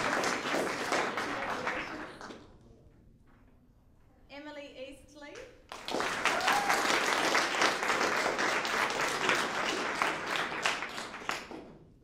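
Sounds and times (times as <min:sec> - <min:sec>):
audience clapping: 0:00.0 - 0:02.6, 0:05.7 - 0:12.0.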